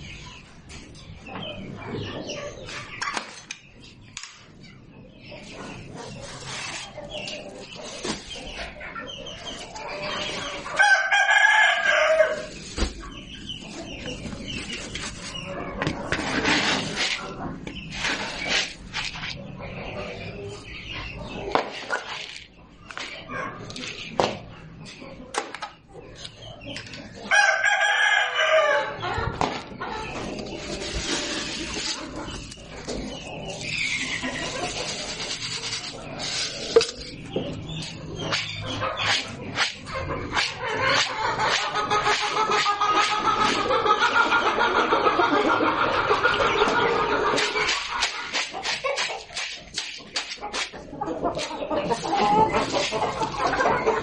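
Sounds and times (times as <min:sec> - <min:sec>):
chickens clucking: 0:00.0 - 0:54.0
rooster crowing: 0:27.3 - 0:29.0.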